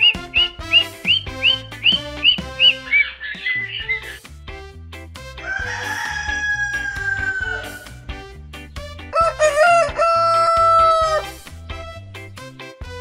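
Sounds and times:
background music with beat: 0.0 - 13.0
rooster crowing: 5.4 - 8.0, 9.1 - 11.3.

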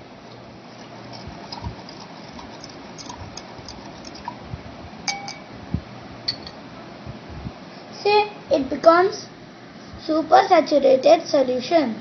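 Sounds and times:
spoon stirring in glass: 1.1 - 4.4, 5.1 - 5.5
spoon clinking glass: 5.1 - 5.5, 6.3 - 6.6.

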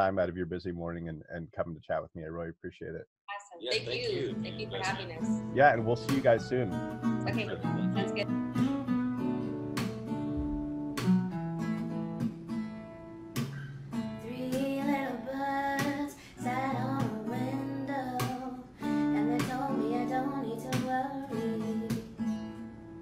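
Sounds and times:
person singing: 3.6 - 6.5, 14.3 - 22.0
acoustic guitar chords: 3.7 - 23.0.

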